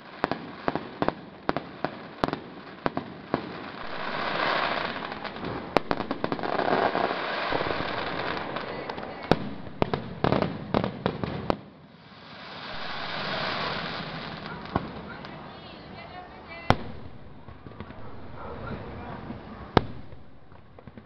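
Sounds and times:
crackling hiss of fireworks: 0.0 - 21.0
firework bangs and pops: 0.0 - 21.0.

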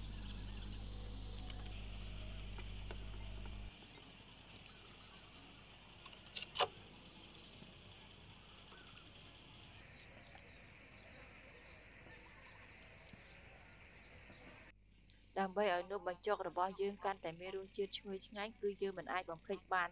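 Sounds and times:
low hum: 0.0 - 6.0
faint insect chirping: 0.0 - 15.4.

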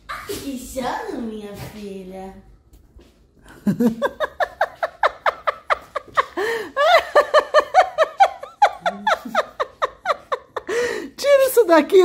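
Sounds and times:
woman laughing hard: 3.6 - 11.1.

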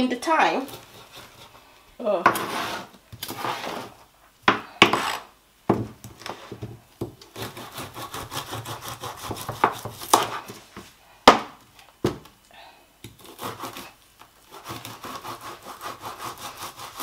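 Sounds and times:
knife sawing through frozen fish: 0.7 - 1.6, 7.3 - 10.4, 13.2 - 17.0.

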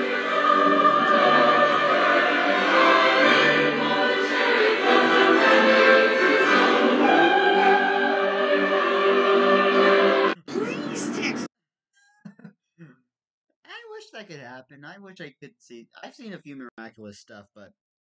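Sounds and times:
operatic choir singing: 0.0 - 10.4
orchestra playing: 0.0 - 11.5.

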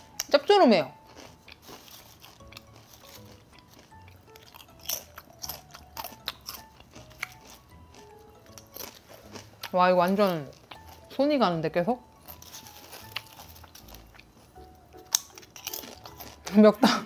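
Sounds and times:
potato chips crunching: 0.0 - 11.3, 12.0 - 16.9.

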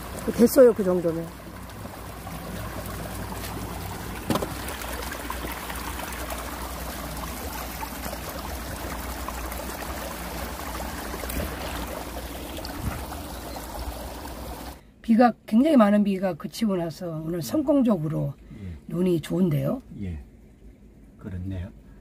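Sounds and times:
water trickling in ditch: 0.0 - 14.8
single knock: 4.2 - 4.5.

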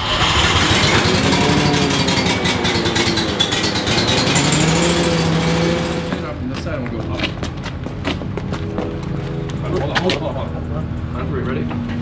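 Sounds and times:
engine running: 0.0 - 12.0.

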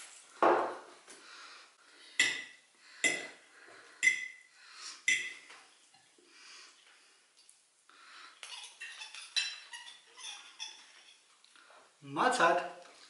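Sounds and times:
cutlery clinking on a plate: 8.4 - 11.3.

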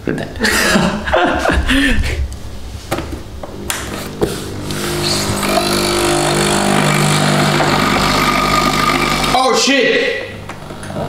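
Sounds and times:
coffee machine pump humming: 2.9 - 11.0.

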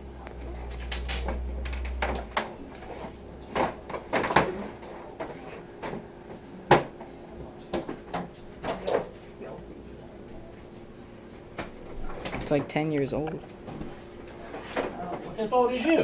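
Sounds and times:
low hum: 0.0 - 5.0.

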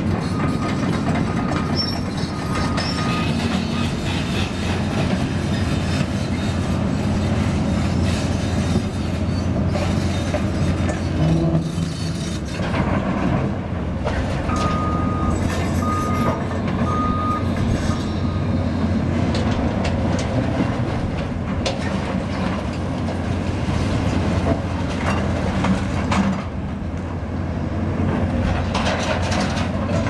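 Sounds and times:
excavator engine running: 0.0 - 30.0
reversing alarm beeps: 0.2 - 4.0, 14.5 - 18.6.

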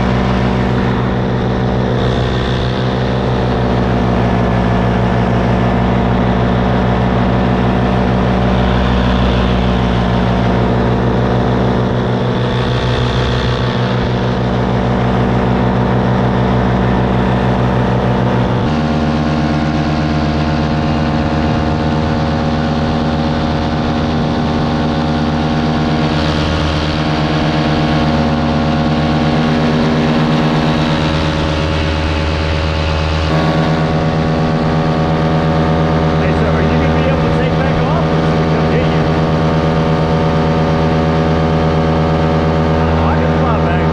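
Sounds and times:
small aircraft engine droning: 0.0 - 43.9.

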